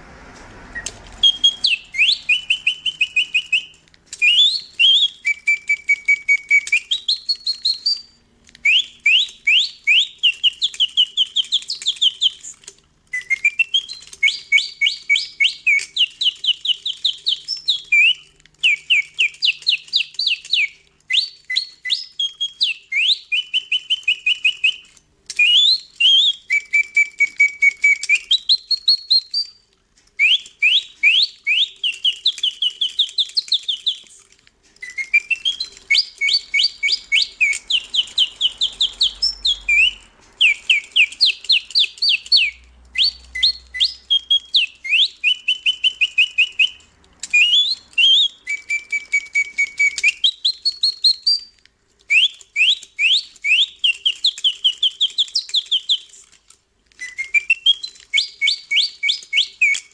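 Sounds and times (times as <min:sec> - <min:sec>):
mechanical bird whistle song: 0:00.8 - 0:59.9.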